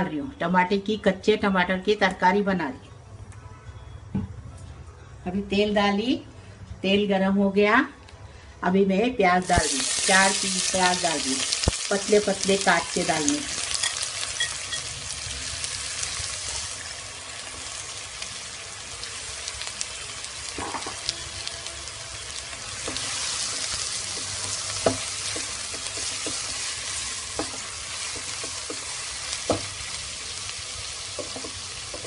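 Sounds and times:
onions sizzling in hot oil: 9.4s - 32.0s.

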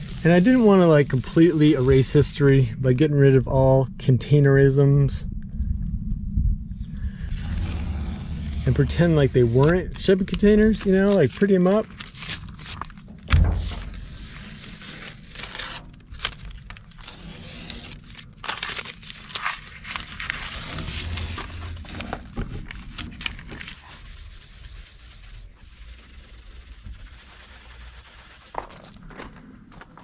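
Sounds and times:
tape peeling and tearing: 0.0s - 2.1s, 6.9s - 29.0s
rubbing and scraping: 6.7s - 29.3s
sharp thump: 13.1s - 14.4s.

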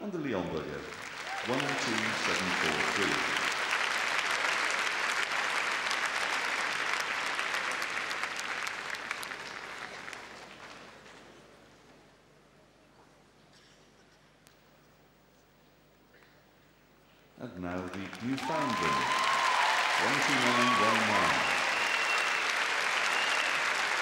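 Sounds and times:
crowd applauding: 0.6s - 11.0s, 17.6s - 24.0s.

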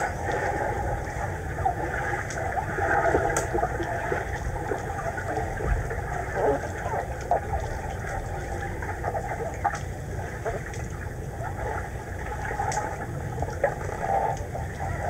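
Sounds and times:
underwater rumble and hiss: 0.0s - 15.0s
faint clicks and knocks: 3.2s - 4.0s.

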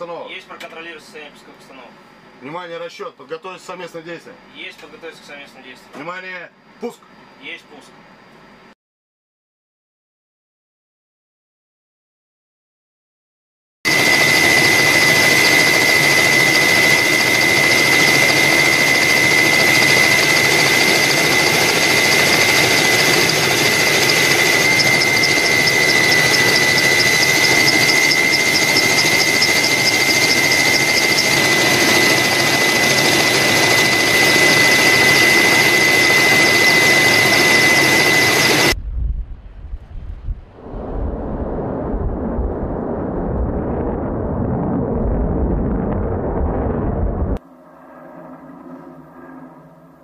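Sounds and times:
engine roar with high whine: 13.9s - 38.8s, 42.2s - 50.0s.

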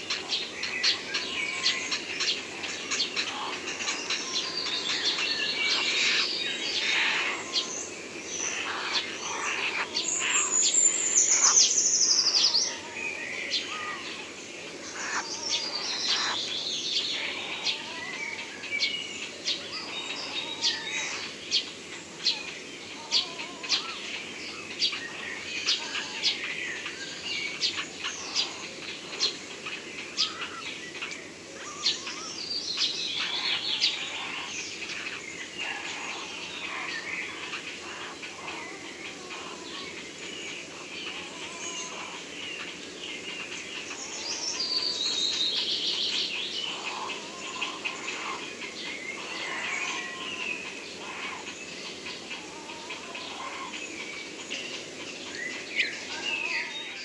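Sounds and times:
sparrows chirping: 0.0s - 57.0s
woodland birdsong: 0.0s - 57.0s.

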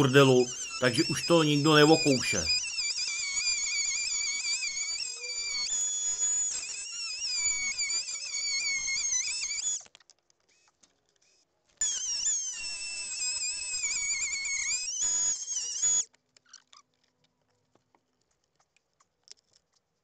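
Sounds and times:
power tool cutting wood: 0.0s - 9.8s, 11.8s - 16.0s.

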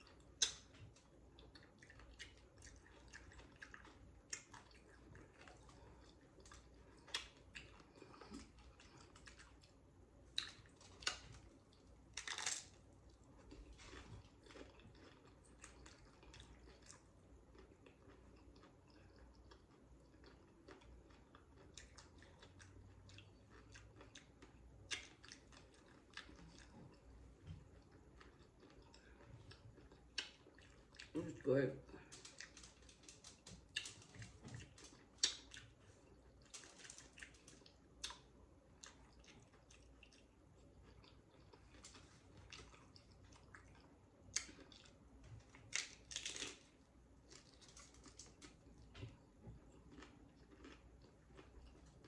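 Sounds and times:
chewing nacho chips: 0.0s - 52.0s.

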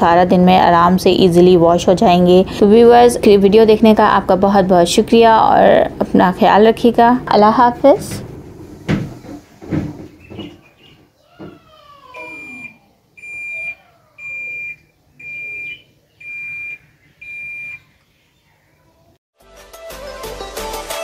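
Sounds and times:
washing machine high beeps: 12.2s - 17.9s.

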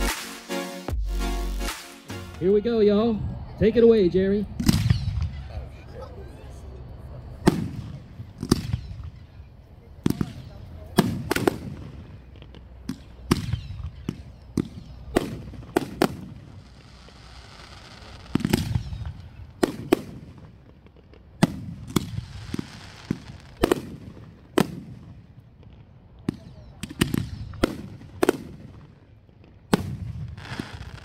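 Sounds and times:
firework shells booming: 4.6s - 5.4s, 7.4s - 9.4s, 10.0s - 31.0s
firework hiss: 15.0s - 24.7s, 29.8s - 31.0s.

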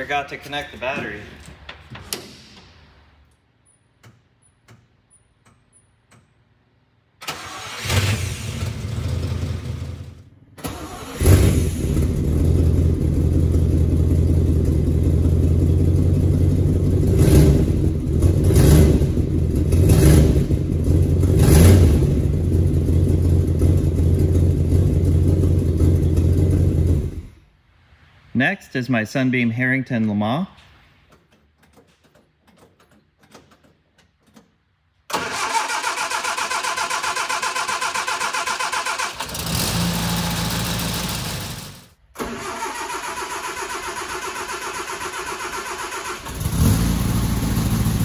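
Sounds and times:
car engine running: 11.7s - 27.3s.

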